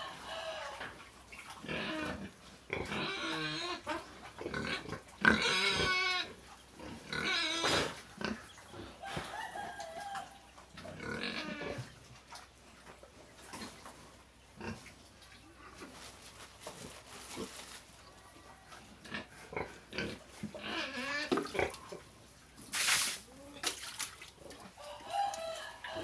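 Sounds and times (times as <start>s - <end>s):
pigs calling: 0.0s - 9.3s, 10.5s - 12.0s, 19.0s - 22.2s.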